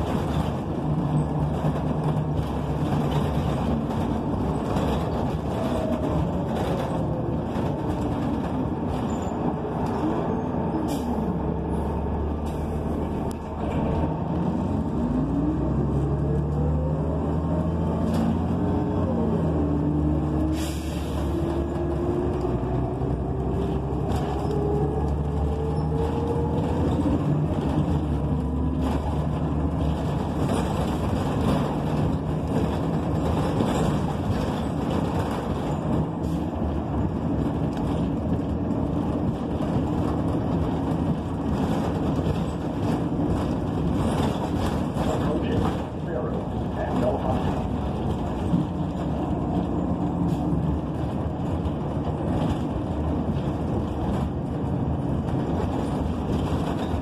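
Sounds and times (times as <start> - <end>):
bus engine drone: 0.0 - 57.0
bus transmission whine: 0.0 - 57.0
road noise: 0.0 - 57.0.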